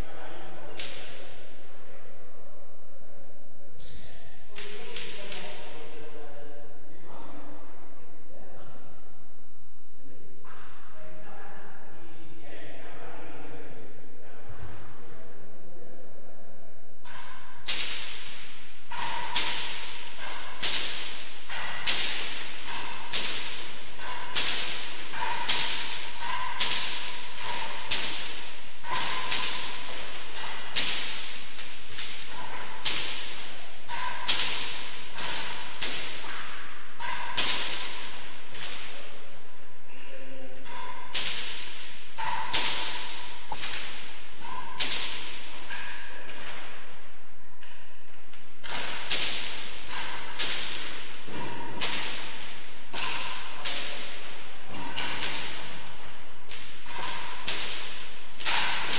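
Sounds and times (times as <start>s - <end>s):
ball struck with rackets: 17.0s - 39.0s, 40.6s - 47.0s, 48.6s - 58.9s
ball rebounding off walls: 17.0s - 39.1s, 40.6s - 47.8s, 48.6s - 58.9s.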